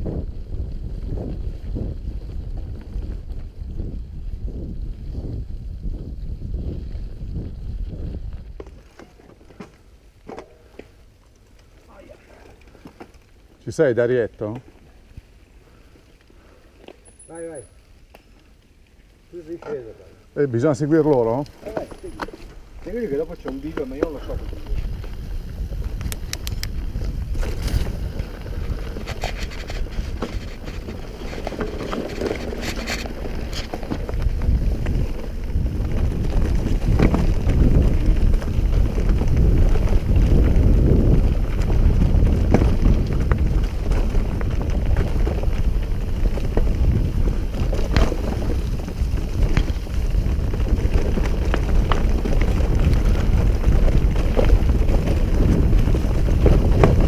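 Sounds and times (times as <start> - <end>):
wind noise on microphone: 0.0 - 9.5, 21.1 - 57.0
bike tyres rumbling over dirt: 0.0 - 57.0
bike clicks and knocks: 8.4 - 11.8, 23.2 - 57.0.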